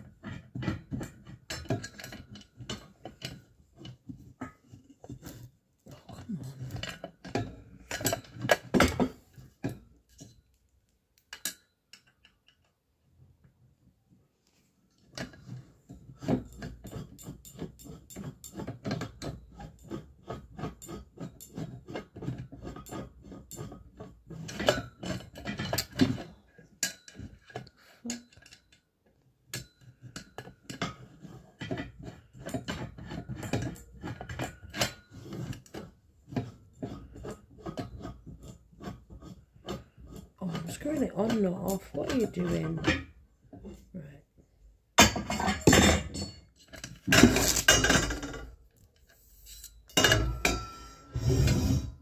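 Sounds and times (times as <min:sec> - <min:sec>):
metal poles clinking and rattling: 0:00.0 - 0:10.6, 0:24.4 - 0:28.8, 0:29.5 - 0:43.8, 0:45.0 - 0:51.8.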